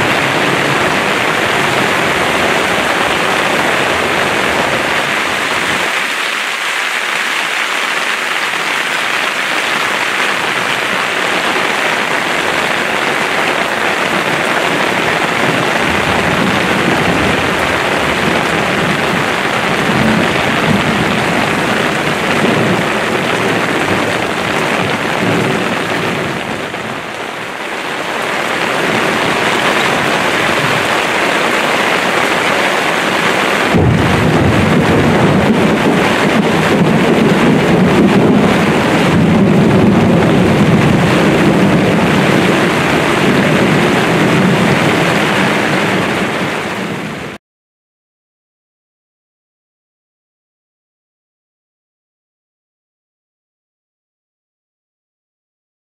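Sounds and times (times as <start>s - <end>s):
heavy rain pouring: 0.0s - 47.4s
low rumble of thunder: 15.3s - 26.5s, 33.7s - 46.1s.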